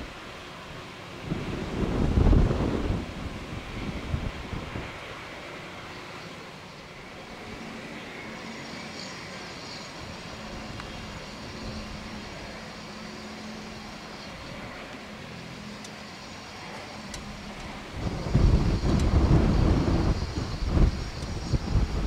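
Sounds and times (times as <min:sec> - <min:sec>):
wind gusts on microphone: 0:00.0 - 0:06.2, 0:16.4 - 0:22.0
jet engines running low: 0:00.0 - 0:22.0.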